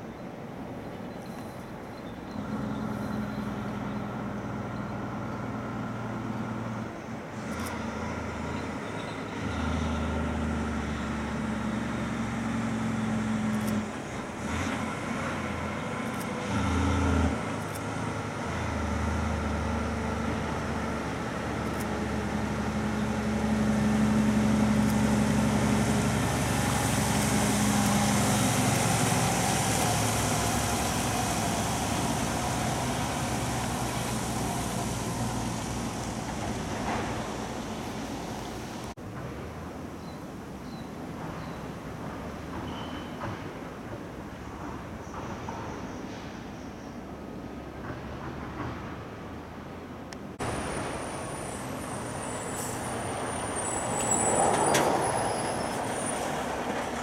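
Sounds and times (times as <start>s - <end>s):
truck diesel engine: 2.2s - 39.0s, 50.2s - 57.0s
tyres hissing on wet road: 2.4s - 39.0s, 50.4s - 57.0s.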